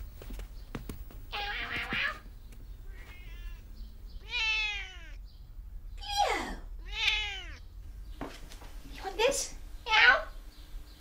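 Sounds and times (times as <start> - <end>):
cat meowing: 1.3 - 2.2, 2.8 - 5.2, 6.8 - 7.6.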